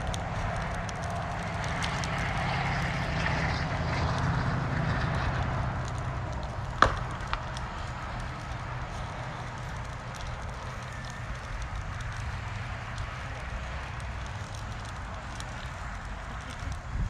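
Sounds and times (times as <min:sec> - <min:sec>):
fire crackling: 0:00.0 - 0:17.0
low vehicle rumble: 0:00.0 - 0:17.0
sharp pop: 0:06.8 - 0:07.4.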